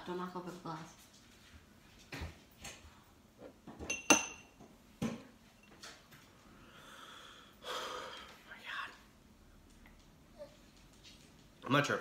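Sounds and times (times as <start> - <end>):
glass clink: 3.8 - 4.6.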